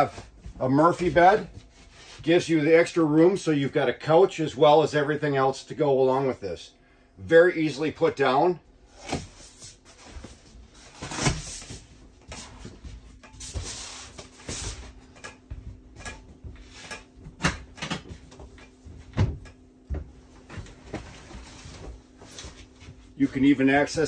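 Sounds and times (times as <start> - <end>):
cushions shifting: 8.8 - 23.8.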